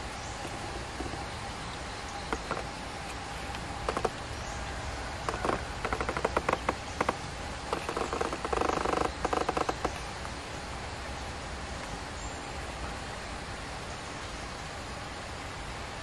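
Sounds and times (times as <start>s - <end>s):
falling rain hiss: 0.0s - 16.0s
bird chattering: 2.1s - 2.7s.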